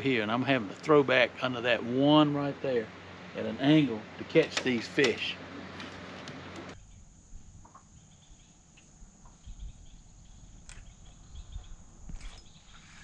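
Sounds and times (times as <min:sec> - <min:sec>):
faint chirping: 0:06.7 - 0:13.0
high-pitched insect trill: 0:06.8 - 0:13.0.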